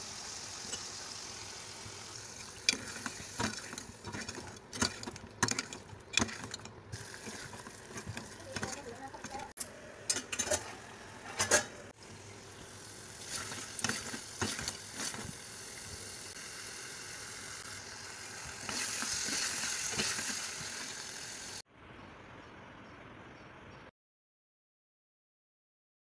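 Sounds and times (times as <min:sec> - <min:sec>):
chicken sizzling in a pot: 0:00.0 - 0:09.6, 0:10.3 - 0:21.6
spoon scraping a pot: 0:02.4 - 0:11.8.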